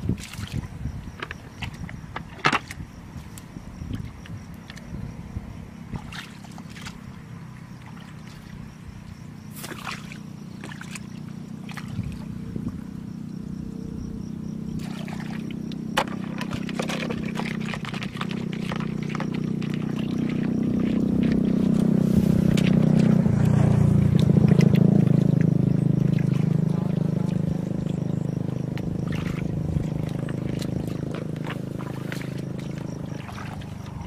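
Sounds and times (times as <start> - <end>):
low motor hum: 0.0 - 34.0
hands splashing in muddy water: 6.0 - 7.0, 9.5 - 12.3, 14.8 - 34.0
water trickling: 14.8 - 34.0.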